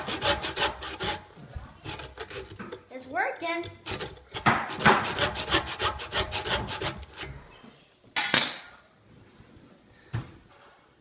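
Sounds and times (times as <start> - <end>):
blade sawing through golf ball: 0.0 - 2.8, 3.6 - 7.4.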